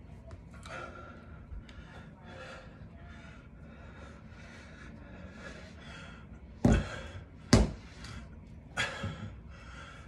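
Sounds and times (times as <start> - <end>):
heavy breathing: 0.6 - 10.0
dumbbells thudding on carpet: 7.5 - 7.8.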